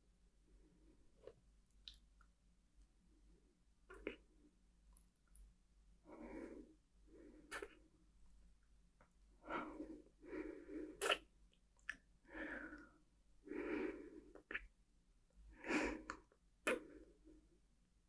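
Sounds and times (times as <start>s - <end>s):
woman breathing: 6.1s - 7.8s, 9.4s - 11.1s, 12.2s - 14.6s, 15.6s - 17.4s.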